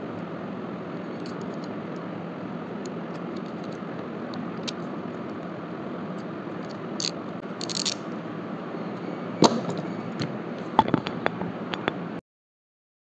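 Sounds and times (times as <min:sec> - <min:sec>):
steady background hum: 0:00.0 - 0:12.2
utility knife scraping and clicking: 0:06.6 - 0:08.0.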